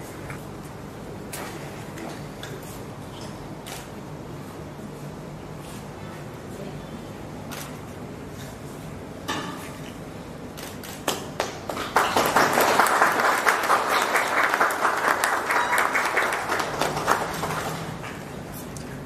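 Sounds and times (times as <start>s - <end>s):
people clapping: 10.7s - 18.4s.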